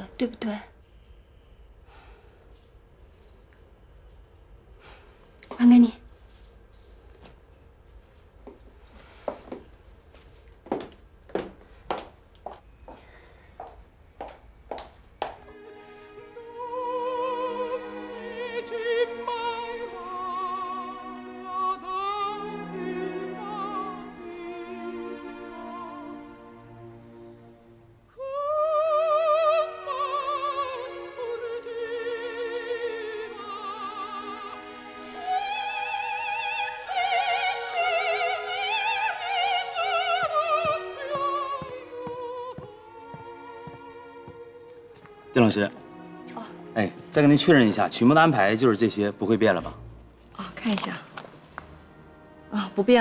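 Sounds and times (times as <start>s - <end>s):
soprano voice singing opera: 15.5s - 27.0s, 28.1s - 45.0s.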